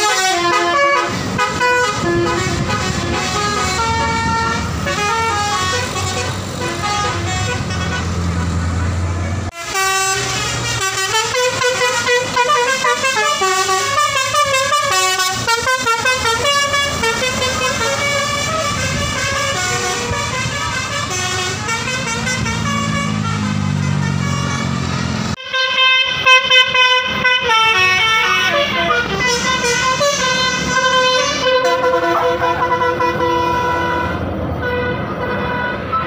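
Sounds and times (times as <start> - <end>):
bus horn playing tune: 0.0 - 36.0.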